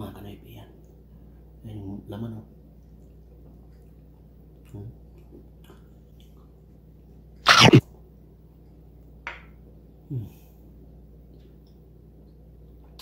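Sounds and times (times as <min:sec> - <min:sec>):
person sneezing: 0:07.5 - 0:07.8.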